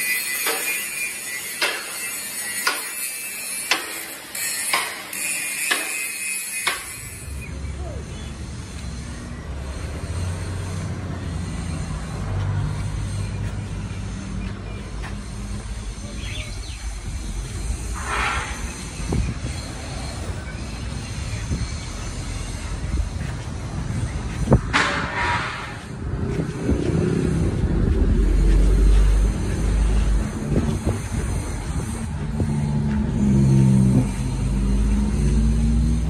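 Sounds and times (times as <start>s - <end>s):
angle grinder on steel: 0.0s - 36.0s
steady low rumble: 10.9s - 34.5s.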